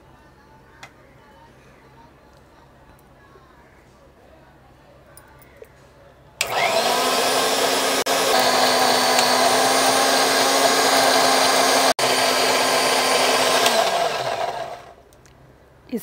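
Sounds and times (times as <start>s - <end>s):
mixer grinder motor whine: 6.4s - 15.0s.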